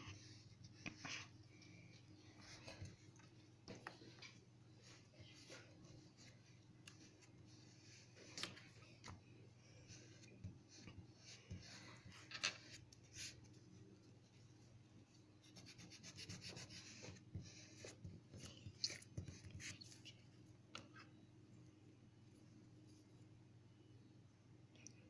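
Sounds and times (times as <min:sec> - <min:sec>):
oil pastel scratching on paper: 0:15.4 - 0:20.2.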